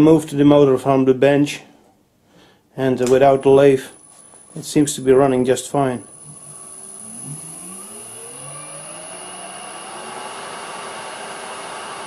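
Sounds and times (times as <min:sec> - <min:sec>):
high-pitched whine: 0:03.7 - 0:12.0
electric motor humming: 0:03.9 - 0:12.0.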